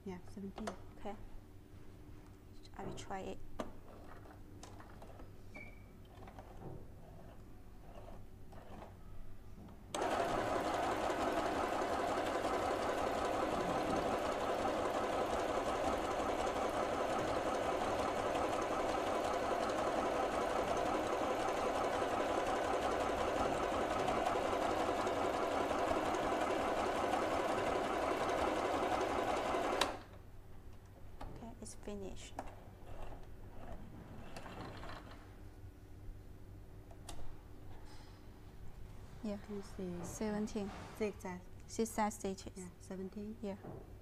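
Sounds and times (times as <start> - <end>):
sewing machine running: 10.0 - 30.0.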